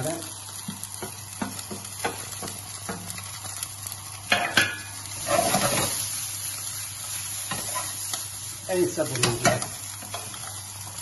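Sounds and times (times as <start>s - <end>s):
vegetables sizzling in a frying pan: 0.0s - 11.0s
wooden spoon knocking and scraping pan: 0.6s - 3.2s.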